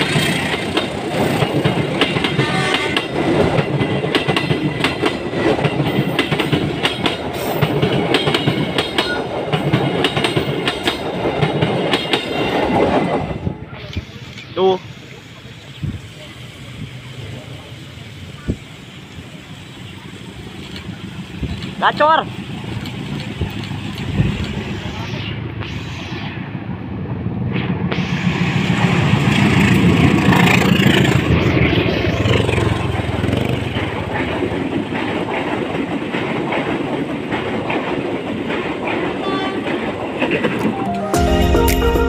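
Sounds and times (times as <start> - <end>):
train wheels clacking over rail joints: 0.0 - 13.2, 20.3 - 24.8, 29.1 - 40.7
diesel locomotive engine rumble: 0.0 - 40.8
music: 40.7 - 42.0.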